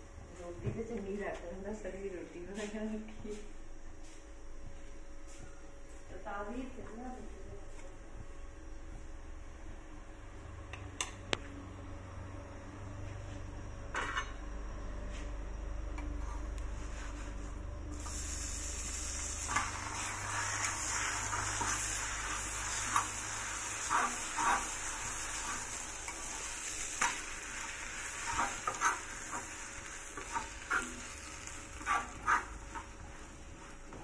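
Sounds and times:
bread sizzling on griddle: 17.9s - 33.9s.

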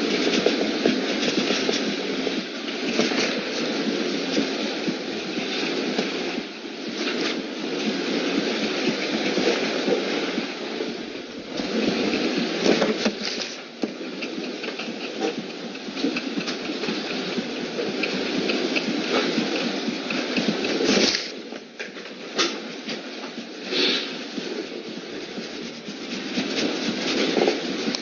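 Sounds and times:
drawing tool scratching on paper: 25.0s - 28.0s.

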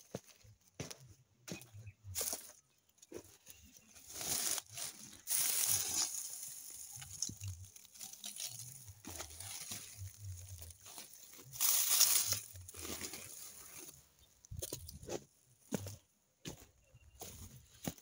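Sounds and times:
straw mulch rustling: 2.1s - 16.0s
plastic sacks crinkling: 3.9s - 14.0s.

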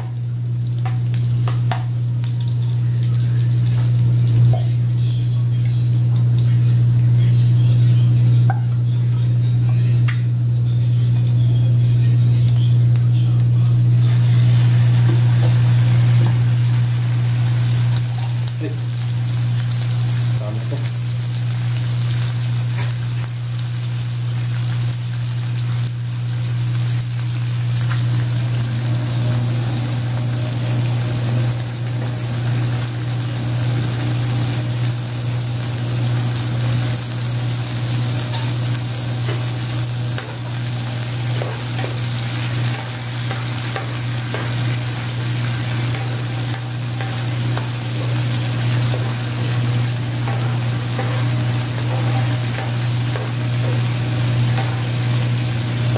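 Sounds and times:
food sizzling in a pan: 0.0s - 55.9s
low hum: 35.6s - 55.9s
spoon scraping a pan: 45.7s - 55.2s.

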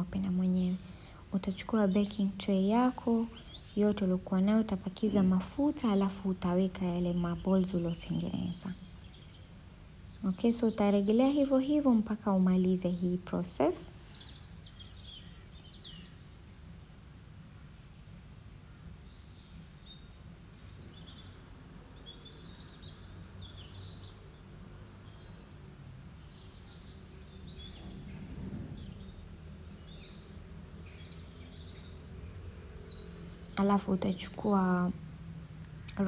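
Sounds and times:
birds chirping: 0.0s - 36.0s
low steady hum: 0.0s - 36.0s.

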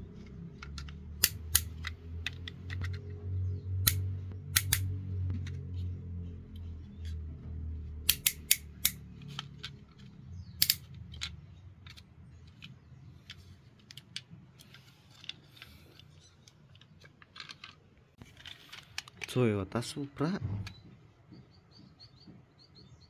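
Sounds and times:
toy vehicles clicking and clacking: 0.0s - 4.8s, 8.1s - 20.0s
low hum: 0.0s - 13.6s.

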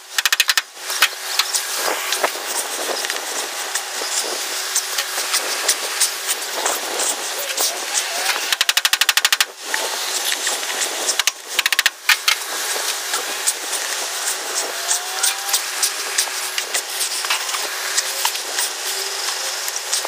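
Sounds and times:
hand tool ratcheting clicks: 0.0s - 1.6s, 8.3s - 9.8s, 11.1s - 12.4s.

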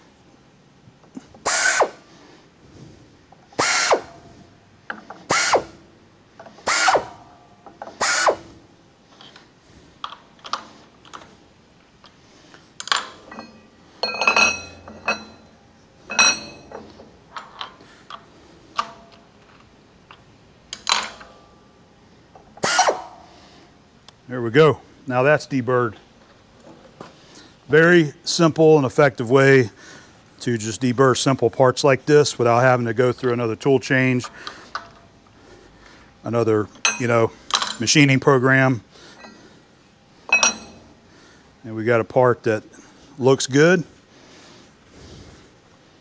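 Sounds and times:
drill spinning with rising whine: 1.4s - 2.0s, 3.6s - 4.2s, 5.3s - 5.8s, 6.6s - 7.2s, 8.0s - 8.5s, 22.6s - 23.1s.

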